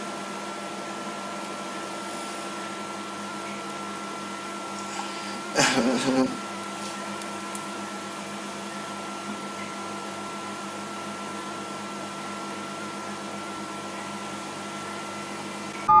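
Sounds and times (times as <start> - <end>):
microwave oven humming: 0.0 - 16.0
microwave beeps: 15.8 - 16.0.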